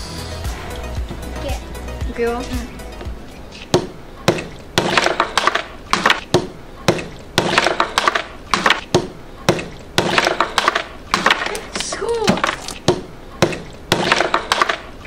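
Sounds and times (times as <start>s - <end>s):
ice being smashed: 10.0s - 14.9s.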